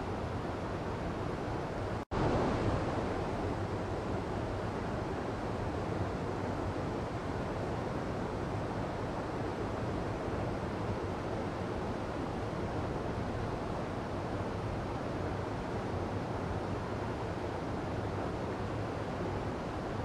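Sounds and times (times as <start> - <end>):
stream rushing: 1.0 - 5.6.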